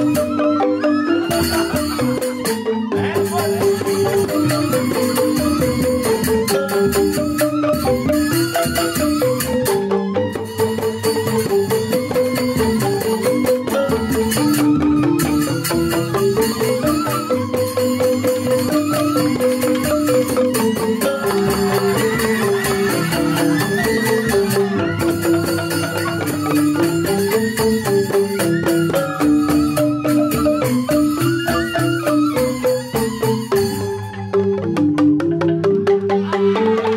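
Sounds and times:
bamboo flutes melody: 0.0 - 36.9
bamboo xylophones interlocking: 0.0 - 36.9
hand drum: 0.0 - 36.9.

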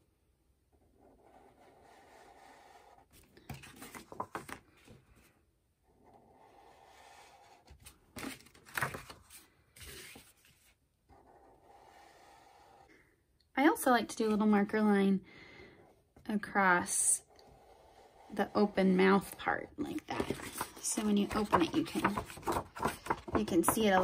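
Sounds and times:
marker scratching on paper: 1.0 - 3.2, 6.0 - 7.7, 11.1 - 12.9
paper rustling and tapping: 3.4 - 5.0, 7.8 - 10.3, 20.0 - 24.0.

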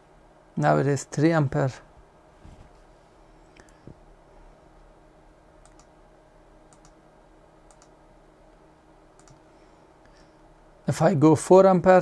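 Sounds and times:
faint hum: 0.0 - 12.0
control clicking: 5.6 - 5.9, 6.7 - 7.0, 7.7 - 8.0, 9.2 - 9.4.

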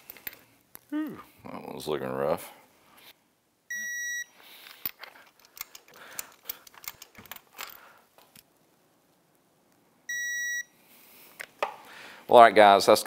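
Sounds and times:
clicks and rattles of tools: 0.0 - 0.5, 4.6 - 8.5
torque wrench beep: 3.7 - 4.4, 10.1 - 10.7.

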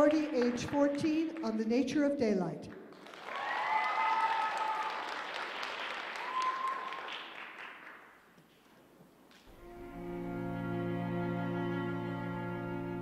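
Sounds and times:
audience applauding: 0.0 - 1.6, 2.9 - 8.2
drawn-out cheers: 3.2 - 5.0, 6.2 - 7.0.

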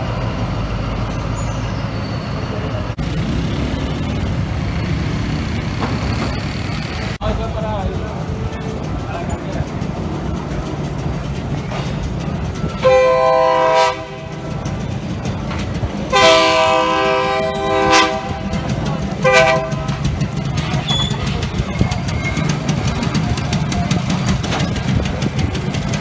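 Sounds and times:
train cars rumbling: 0.0 - 26.0
train horn blasts: 12.8 - 14.4, 16.1 - 20.0.

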